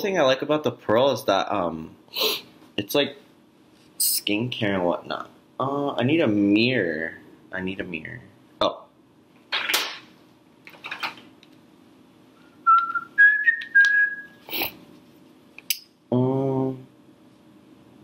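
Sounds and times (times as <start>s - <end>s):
man humming: 16.1s - 16.9s.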